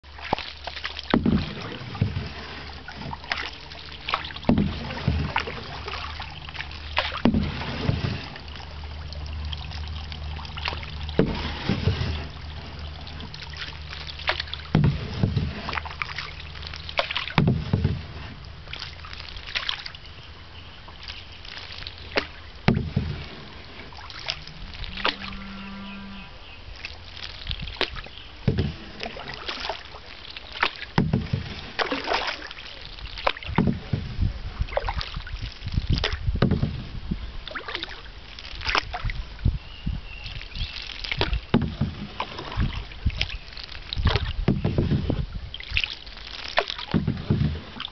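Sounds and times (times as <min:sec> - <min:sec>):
low steady hum: 0:00.0 - 0:47.9
paddle splashing through water: 0:00.0 - 0:47.9
short hum-like tone: 0:24.4 - 0:26.6.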